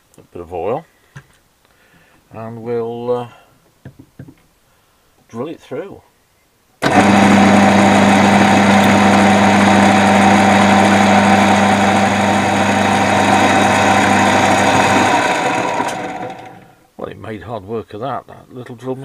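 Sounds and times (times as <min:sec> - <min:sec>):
drill boring through metal: 0:06.8 - 0:16.7
drill motor humming: 0:06.8 - 0:16.8
motor running down: 0:06.8 - 0:16.8.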